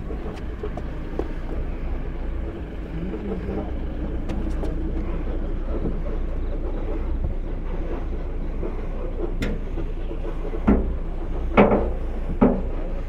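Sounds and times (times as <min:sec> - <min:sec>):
slow vehicle rumbling: 0:00.0 - 0:13.0
sharp knocks and clunks: 0:09.2 - 0:13.0.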